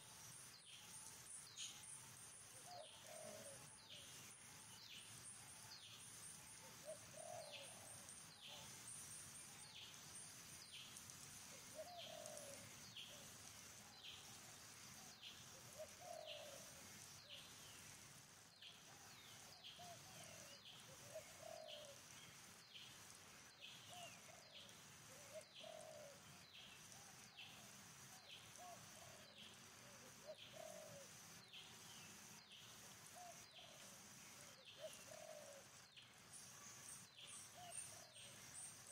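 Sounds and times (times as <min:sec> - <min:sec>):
steady high hiss: 0:00.0 - 0:38.9
low cooing calls: 0:02.6 - 0:03.7, 0:06.8 - 0:08.0, 0:11.7 - 0:12.6, 0:15.7 - 0:16.8, 0:19.8 - 0:22.0, 0:25.1 - 0:26.2, 0:28.6 - 0:31.1, 0:34.8 - 0:35.7.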